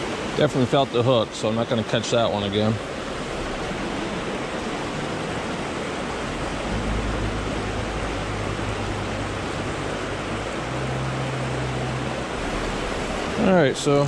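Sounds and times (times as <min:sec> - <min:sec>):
creek water rushing over rocks: 0:00.0 - 0:14.0
low rumble: 0:02.8 - 0:13.7.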